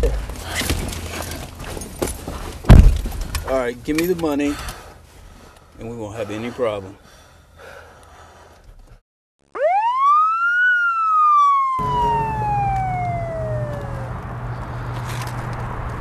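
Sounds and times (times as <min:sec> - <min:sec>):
outdoor noise: 0:00.0 - 0:16.0
police siren wail: 0:09.6 - 0:14.9.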